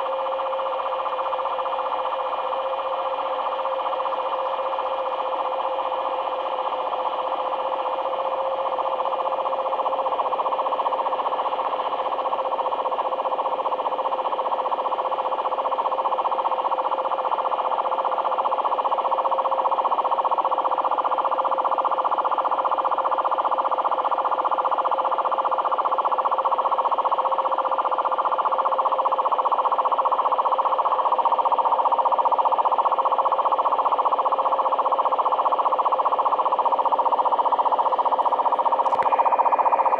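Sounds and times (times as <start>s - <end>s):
steady radio tone: 34.2s - 39.9s
buzzing radio signal: 37.6s - 39.9s.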